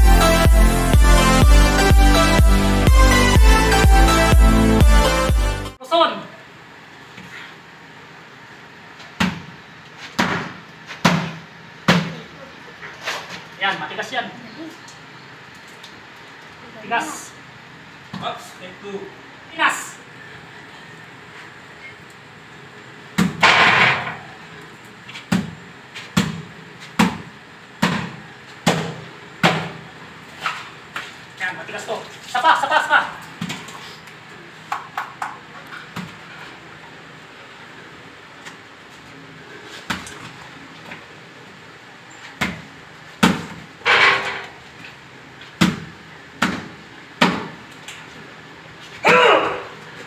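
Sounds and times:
fist thumping coconut on concrete: 0:10.1 - 0:12.2, 0:25.3 - 0:29.8, 0:43.2 - 0:43.6, 0:45.6 - 0:47.6.

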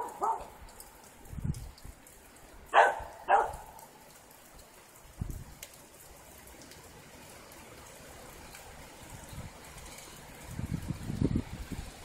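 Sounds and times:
dog barks: 0:00.0 - 0:00.6, 0:02.7 - 0:03.9
heavy rain hissing: 0:00.0 - 0:12.0.

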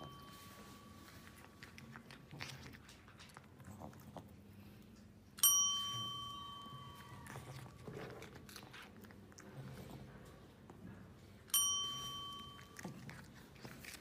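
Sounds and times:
desk service bell ding: 0:00.0 - 0:00.7, 0:05.4 - 0:07.2, 0:11.5 - 0:12.6.

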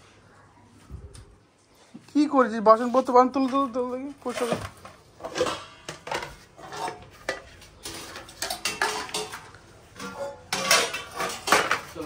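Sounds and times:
pots and pans clattering: 0:04.2 - 0:12.0.

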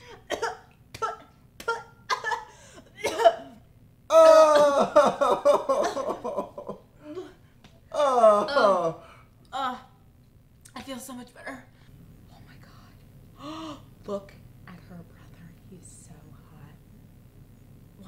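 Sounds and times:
person coughing: 0:00.0 - 0:03.6, 0:04.5 - 0:07.3
long wavering groan: 0:04.1 - 0:05.4, 0:07.0 - 0:09.8.

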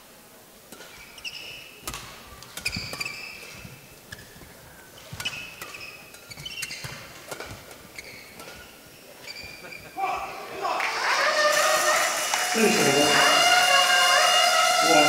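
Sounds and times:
rackets striking shuttlecock: 0:00.7 - 0:09.9
shoes squeaking on court: 0:00.7 - 0:10.4.

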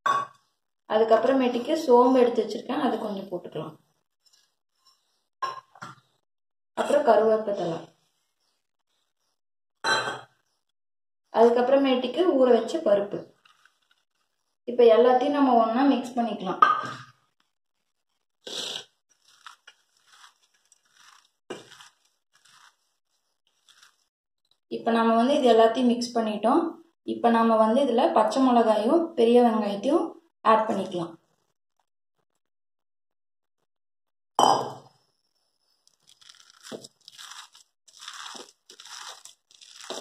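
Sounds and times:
wet crunchy dough squeezes: 0:13.2 - 0:14.6, 0:17.8 - 0:24.1, 0:35.8 - 0:40.0
hand squishing batter in steel bowl: 0:19.1 - 0:24.1.

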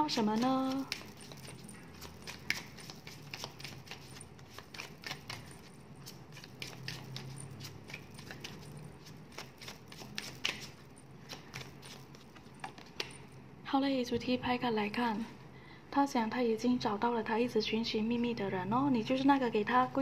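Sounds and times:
cards being shuffled: 0:00.1 - 0:13.4.

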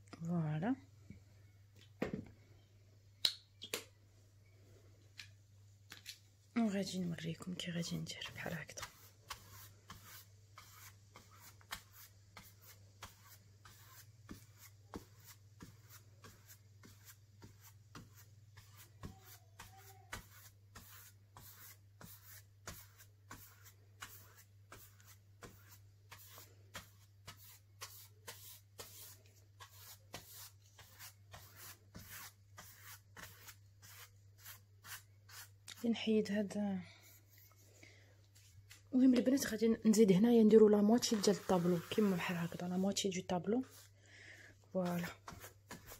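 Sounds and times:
paintbrush strokes on canvas: 0:06.7 - 0:35.9, 0:37.0 - 0:37.7, 0:40.1 - 0:44.0, 0:44.7 - 0:45.9.

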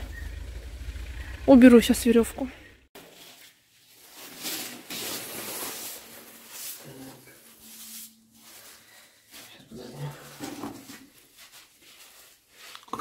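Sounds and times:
glove and clothing rustle: 0:03.0 - 0:12.8.

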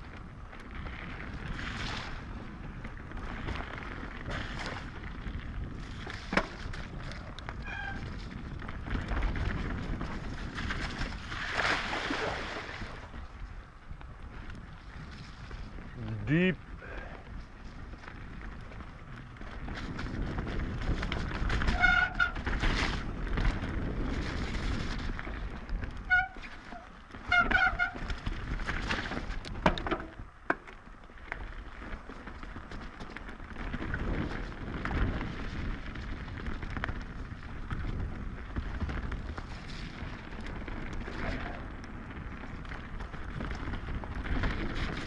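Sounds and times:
bike tyre rumble and frame rattle: 0:00.0 - 0:45.0
squealing disc brakes: 0:07.6 - 0:08.2.

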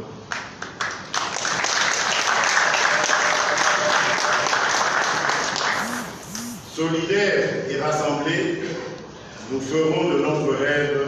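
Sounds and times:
audience applauding: 0:00.8 - 0:06.0.

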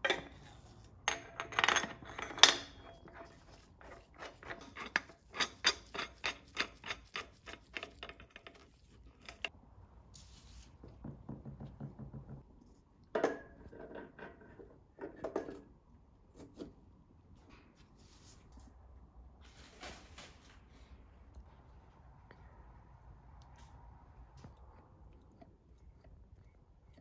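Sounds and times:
metal engine parts clinking: 0:00.0 - 0:09.5.

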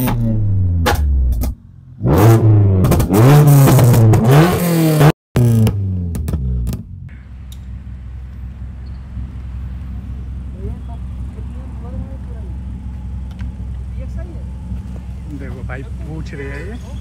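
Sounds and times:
car engine revving: 0:00.0 - 0:17.0
exhaust pops and bangs: 0:02.8 - 0:04.3, 0:05.4 - 0:07.8.

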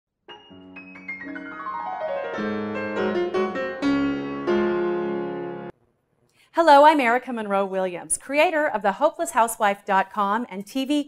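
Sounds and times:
piano jingle: 0:00.3 - 0:05.7.

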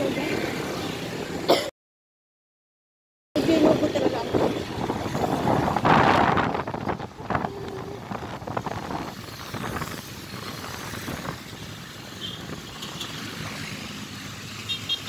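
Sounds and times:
motorcycle engine and road noise: 0:00.0 - 0:01.5, 0:03.4 - 0:15.0
wind rushing over microphone: 0:03.4 - 0:13.6.

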